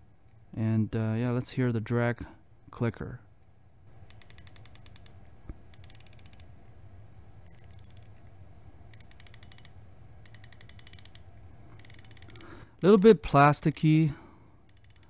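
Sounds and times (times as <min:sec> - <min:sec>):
fishing reel drag clicking: 0:14.7 - 0:15.0.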